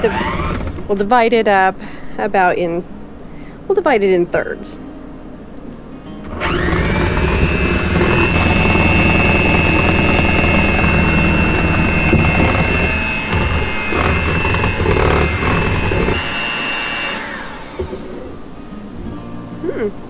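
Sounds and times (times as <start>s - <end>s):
electric hand mixer whine: 0.0s - 0.9s, 6.3s - 18.5s
low hum: 4.8s - 19.9s.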